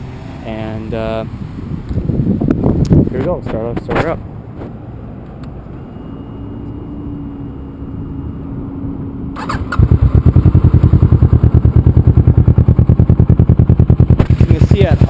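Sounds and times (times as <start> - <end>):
motorcycle engine idling: 9.4 - 15.0
starter clatter: 13.9 - 15.0.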